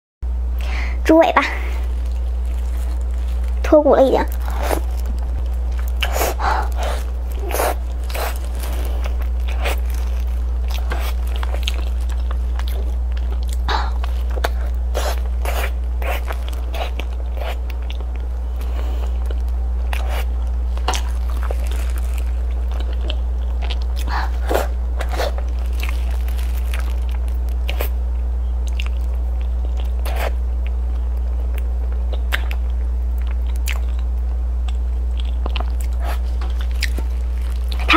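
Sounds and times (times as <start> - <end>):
steady low hum: 0.2 - 37.9
wet lip smacks and chewing: 31.6 - 37.0.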